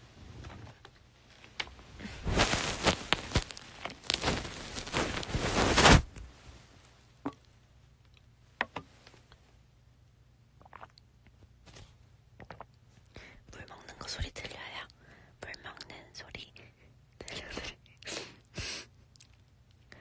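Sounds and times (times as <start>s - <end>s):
rustling handling noise at microphone: 0.0s - 7.0s.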